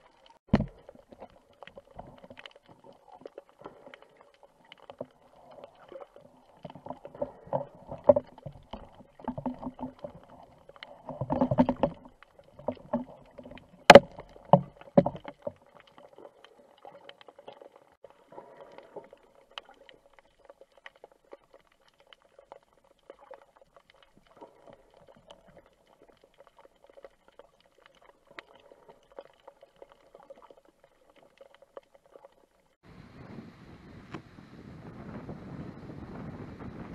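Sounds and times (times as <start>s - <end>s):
underwater knocks and bumps: 0.0s - 4.0s, 4.6s - 16.3s
underwater thuds: 0.5s - 2.4s, 6.6s - 15.6s.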